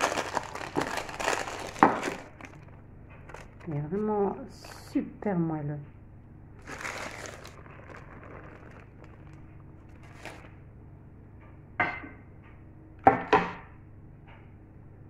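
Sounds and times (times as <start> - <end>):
baking paper rustling: 0.0 - 4.1, 6.6 - 10.6.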